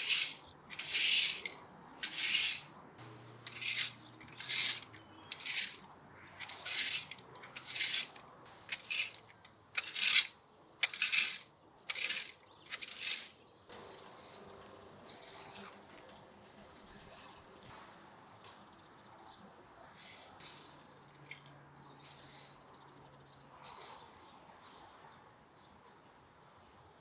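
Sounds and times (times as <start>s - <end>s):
rake scratching through dry grass: 0.0s - 2.7s, 3.4s - 13.4s.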